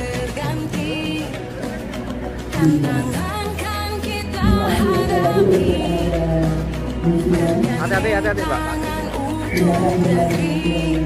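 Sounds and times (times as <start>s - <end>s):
song with bass line: 0.0s - 11.0s
person singing: 2.6s - 11.0s.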